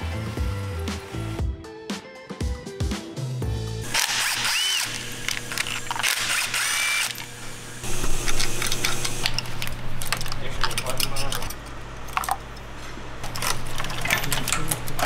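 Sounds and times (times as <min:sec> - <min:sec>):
cordless drill running: 0:03.8 - 0:09.3.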